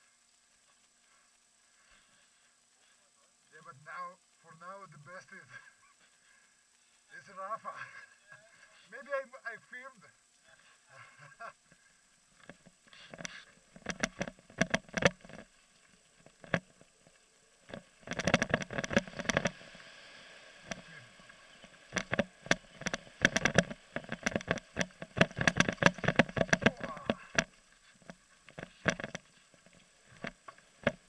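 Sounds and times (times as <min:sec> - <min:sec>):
bike knocks and rattles: 0:13.2 - 0:15.4, 0:17.7 - 0:19.6, 0:21.9 - 0:29.2.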